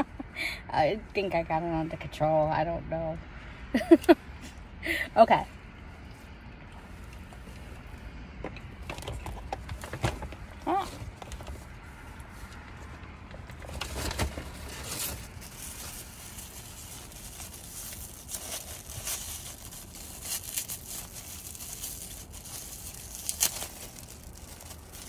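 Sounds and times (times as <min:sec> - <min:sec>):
plastic wrapper crinkling: 0:13.8 - 0:25.0.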